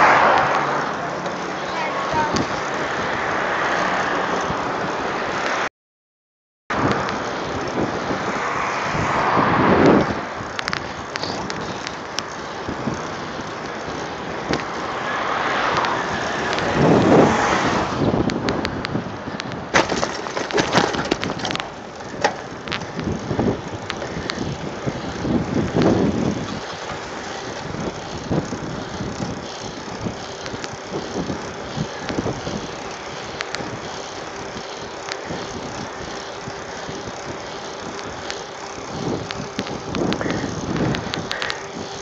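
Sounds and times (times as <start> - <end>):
tyre and wind noise: 0.0 - 5.7, 6.7 - 42.0
bike frame rattling and knocking: 19.3 - 42.0.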